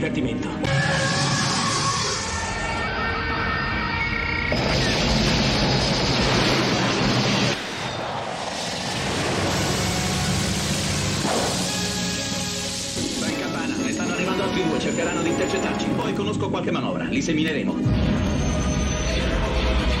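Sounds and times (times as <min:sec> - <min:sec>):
howling scream of fighter craft: 0:00.7 - 0:04.4.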